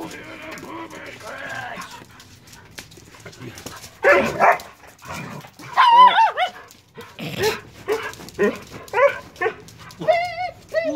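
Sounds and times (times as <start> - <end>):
dogs barking: 0.0 - 10.9
dogs yipping: 3.9 - 10.9
dogs whining: 5.3 - 10.9.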